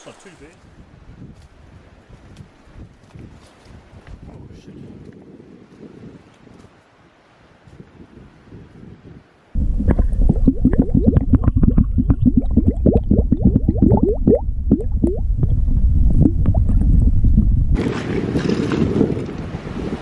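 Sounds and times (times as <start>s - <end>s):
bottle glugging underwater: 9.6s - 19.4s.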